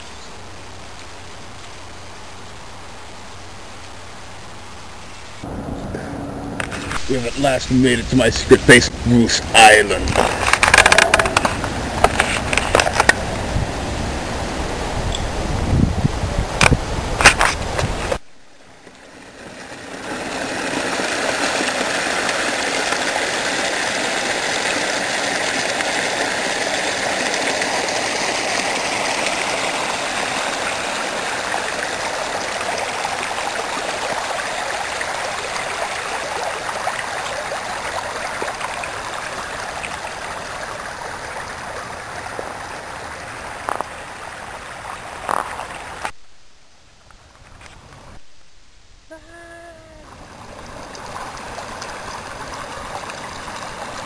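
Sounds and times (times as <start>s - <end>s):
rushing water of rapids: 6.7s - 46.1s, 50.0s - 54.0s.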